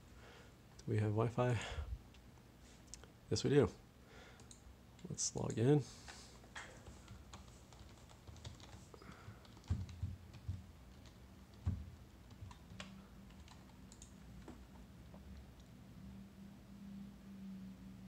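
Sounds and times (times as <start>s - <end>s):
typing on computer keyboard: 6.6s - 14.6s.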